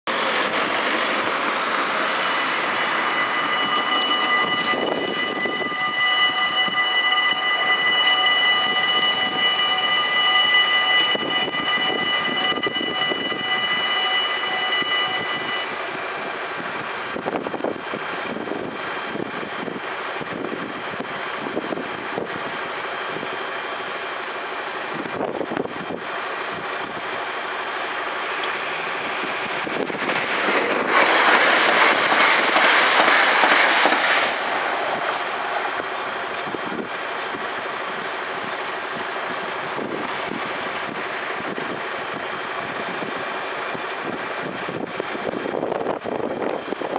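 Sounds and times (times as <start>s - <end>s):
level crossing warning bells: 0.1s - 33.4s
approaching train rumble: 0.1s - 46.9s.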